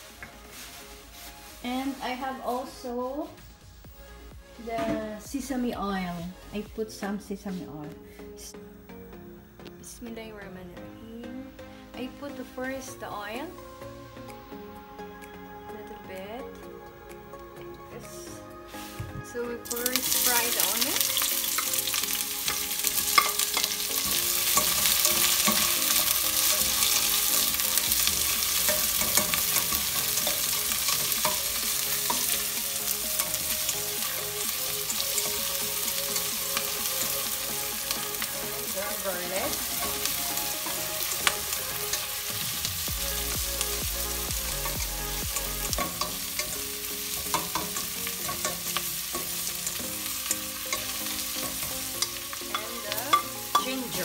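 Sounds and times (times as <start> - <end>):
onion sizzling in hot oil: 0.0 - 2.9, 17.3 - 54.0
spatula scraping a pan: 21.2 - 34.3.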